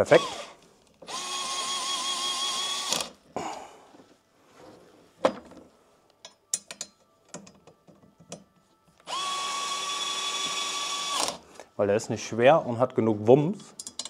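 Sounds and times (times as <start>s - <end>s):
electric screwdriver whine: 0.1s - 3.2s, 9.0s - 11.4s.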